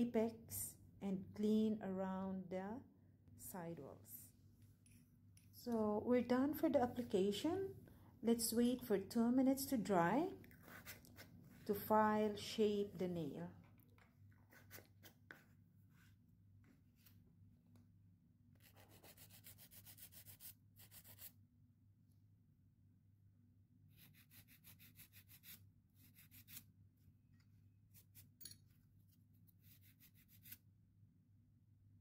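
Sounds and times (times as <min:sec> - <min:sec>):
nail file rasping on nail: 0:18.6 - 0:21.4, 0:23.9 - 0:26.7, 0:27.9 - 0:28.4, 0:29.5 - 0:30.6.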